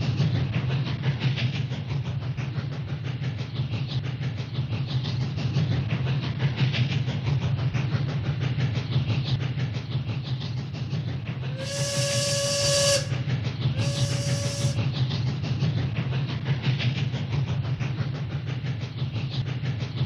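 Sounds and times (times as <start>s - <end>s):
toy train motor whirring: 11.5s - 13.2s, 13.8s - 14.8s
toy steam whistle toots: 11.5s - 14.8s.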